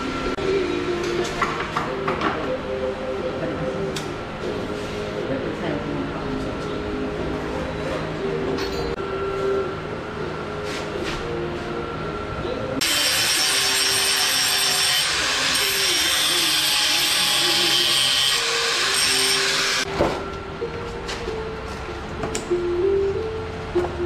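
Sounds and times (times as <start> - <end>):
background music: 0.0 - 24.0
grinder cutting metal chain: 12.8 - 19.8.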